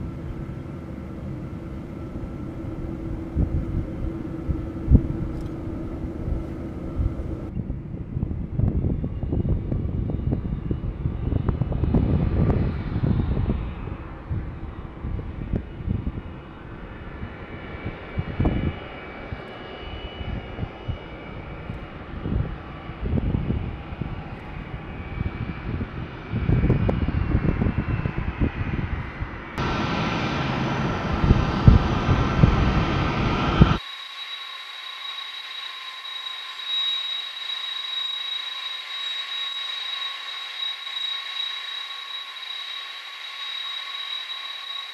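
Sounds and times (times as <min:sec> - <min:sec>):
jet engine whine: 0:00.0 - 0:44.9
jet engines low rumble: 0:00.0 - 0:44.9.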